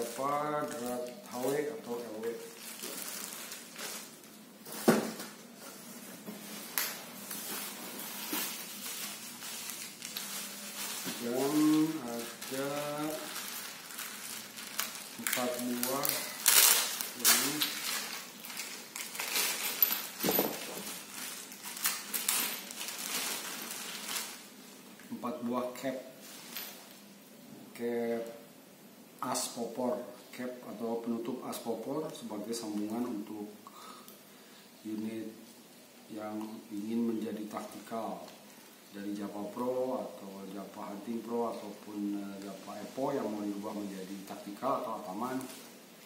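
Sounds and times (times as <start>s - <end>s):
crisp crackle: 0.0s - 4.4s, 6.5s - 24.6s
plastic bag crinkling: 0.0s - 24.5s
plastic wrapping rustling: 0.0s - 24.7s, 40.5s - 46.0s.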